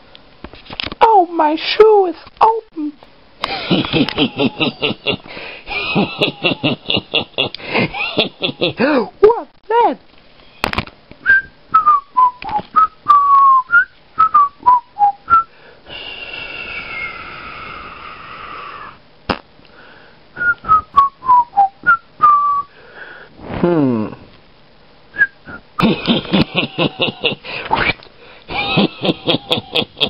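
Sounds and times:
person whistling a tune: 11.2s - 15.5s, 20.4s - 22.7s
breathy hiss with falling tone: 15.4s - 19.0s.

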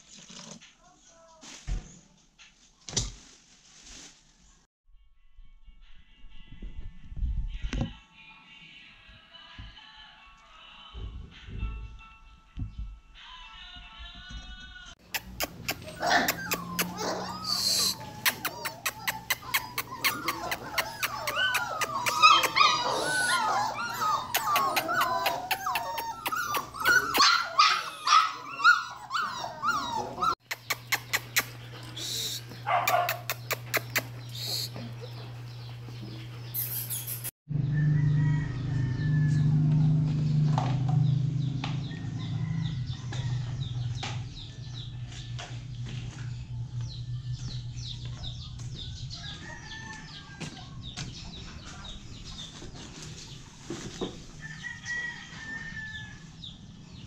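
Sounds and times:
puppies whining and yelping: 15.1s - 37.3s.

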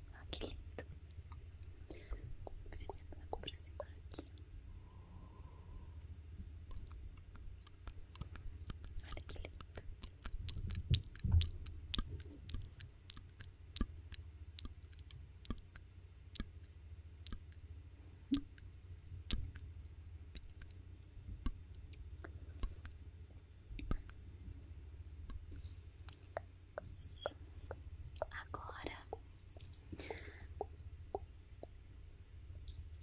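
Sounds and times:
mouth clicks and pops: 6.2s - 17.6s, 18.3s - 18.7s, 19.3s - 19.7s, 20.3s - 20.8s, 23.7s - 24.2s, 25.2s - 31.8s.

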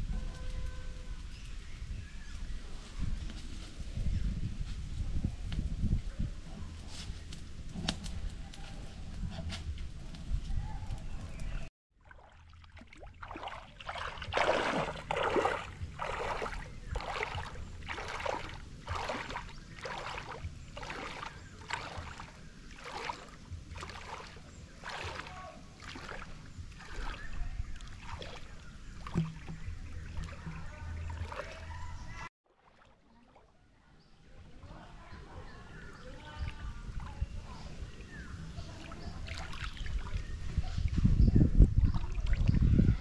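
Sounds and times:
water splashing from swimming strokes: 12.0s - 31.7s, 32.5s - 33.5s, 38.6s - 40.3s.

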